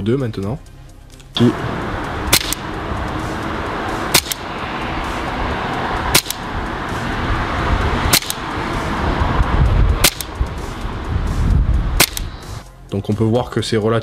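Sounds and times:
airsoft pistol shots: 0:02.3 - 0:02.7, 0:04.1 - 0:04.4, 0:06.1 - 0:06.4, 0:08.1 - 0:08.4, 0:10.0 - 0:10.3, 0:12.0 - 0:12.3.

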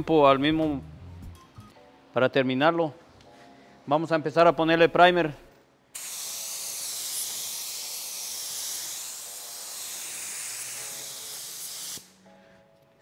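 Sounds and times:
paint spray gun hissing: 0:06.0 - 0:12.1.

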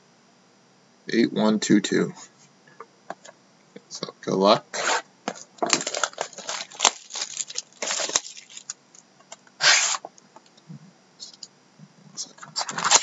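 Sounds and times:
plastic shrink-wrap crinkling and tearing: 0:05.3 - 0:08.8, 0:12.6 - 0:13.0.

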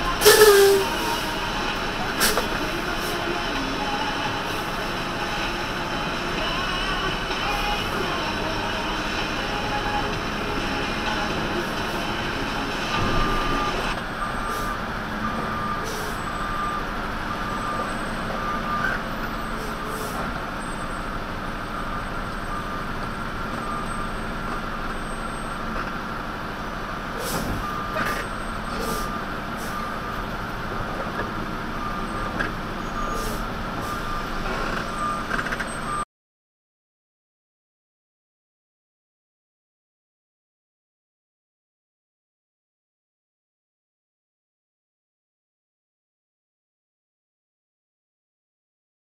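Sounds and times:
truck engine running: 0:00.0 - 0:36.0
reversing alarm beeping: 0:02.9 - 0:25.8, 0:27.5 - 0:31.0, 0:31.7 - 0:36.0.

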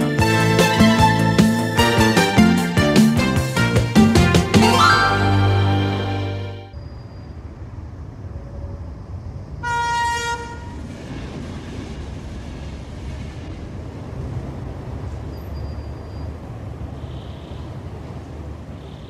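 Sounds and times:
electric train rumbling past: 0:00.0 - 0:17.0
train horn toot: 0:09.6 - 0:10.8.

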